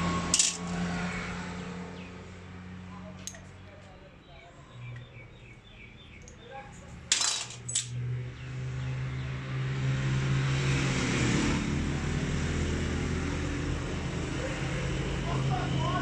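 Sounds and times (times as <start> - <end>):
vehicle engine humming: 0.0 - 16.0
metal parts clinking: 0.3 - 0.7, 7.1 - 8.0.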